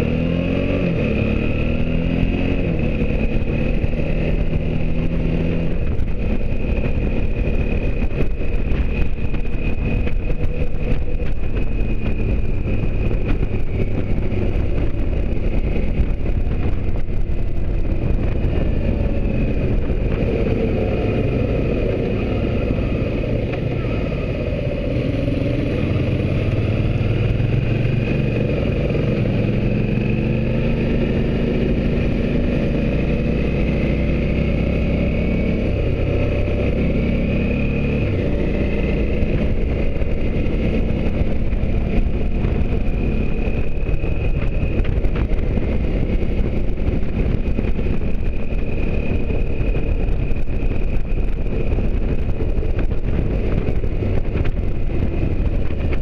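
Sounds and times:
motorcycle engine running: 0.0 - 56.0
wind noise: 0.0 - 56.0.

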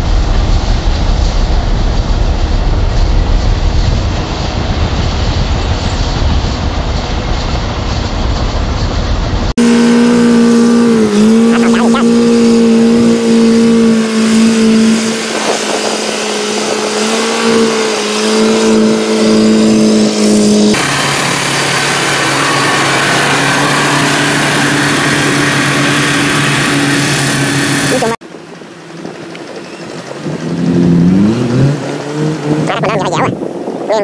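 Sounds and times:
machine engine running lower pitch: 0.0 - 33.4
small engine running at high revs: 9.6 - 33.5.

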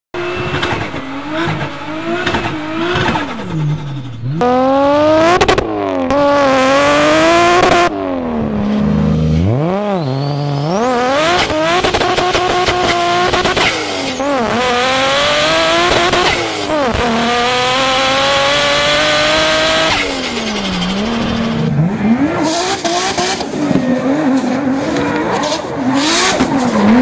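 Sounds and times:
car engines revving: 0.1 - 27.0
thin high turbo whine: 0.2 - 5.1.

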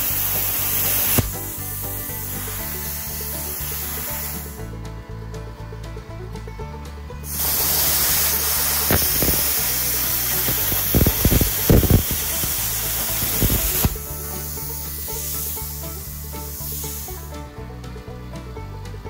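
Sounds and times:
crackling pops of cutting metal: 0.2 - 1.5, 8.8 - 14.1
plasma cutter hissing: 0.4 - 1.3, 7.3 - 15.6, 16.6 - 17.1.

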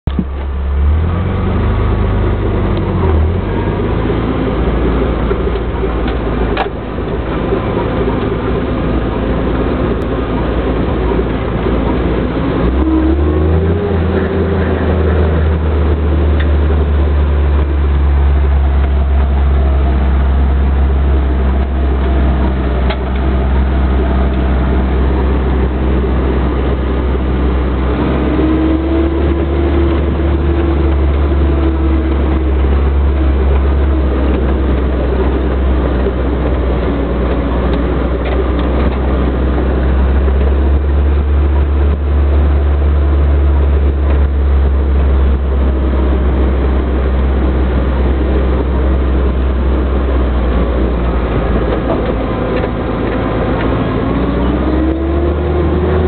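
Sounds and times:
jeep engine running: 0.0 - 56.0.

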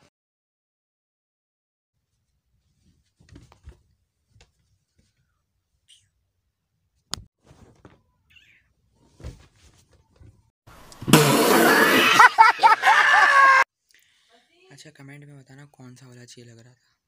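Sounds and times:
soft thumps of person moving: 9.0 - 10.5.

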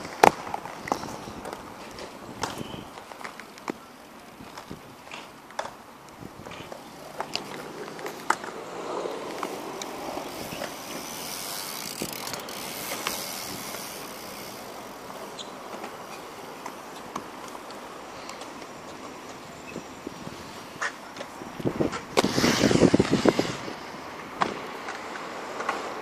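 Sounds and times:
skates clicking and scraping on ledge: 0.0 - 26.0
rushing noise: 21.8 - 24.3.

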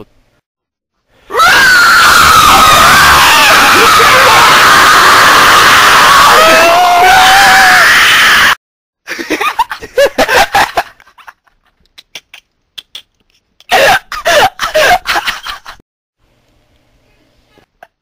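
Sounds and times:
people laughing: 3.4 - 4.5, 9.1 - 11.7.

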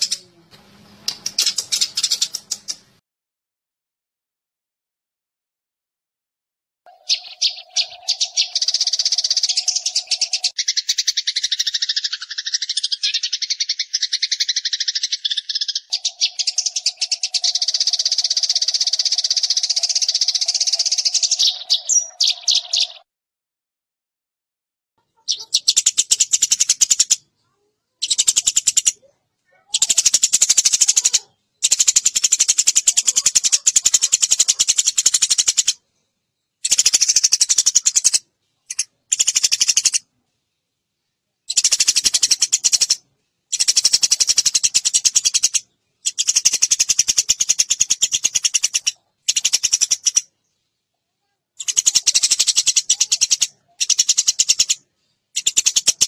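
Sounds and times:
sparrow chirping: 0.0 - 3.0, 6.9 - 23.0, 25.0 - 50.8, 51.6 - 56.0.

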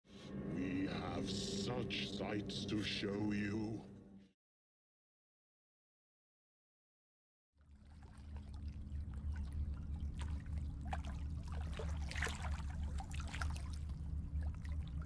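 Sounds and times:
low steady hum: 0.1 - 4.2, 7.7 - 15.0
water trickling and splashing: 7.6 - 15.0.

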